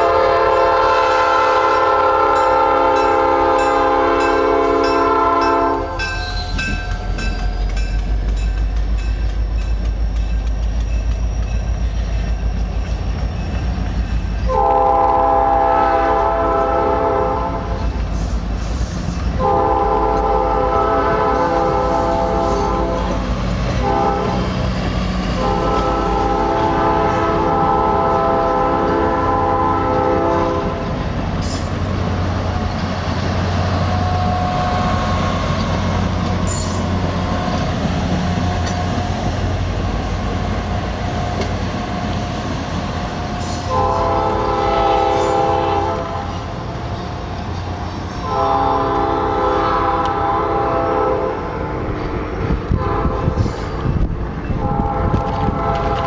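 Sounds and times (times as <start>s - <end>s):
locomotive air horn blasts: 0.0s - 6.4s, 14.5s - 17.8s, 19.3s - 24.6s, 25.3s - 30.9s, 43.4s - 46.5s, 48.1s - 51.6s, 52.7s - 53.8s, 54.5s - 56.0s
diesel train rumbling: 0.0s - 56.0s.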